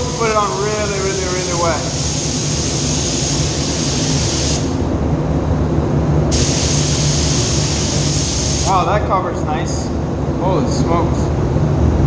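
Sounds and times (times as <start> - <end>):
paint spray gun hissing: 0.0 - 4.8, 6.3 - 8.8
steady low hum: 0.0 - 12.0.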